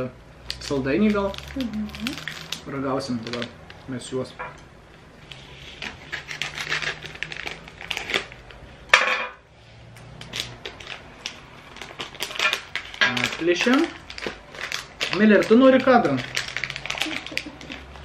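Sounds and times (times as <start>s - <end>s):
plastic packet crinkling: 0.5s - 4.1s, 5.6s - 8.7s, 10.2s - 18.0s
scissors cutting plastic: 5.3s - 8.6s, 10.2s - 18.0s.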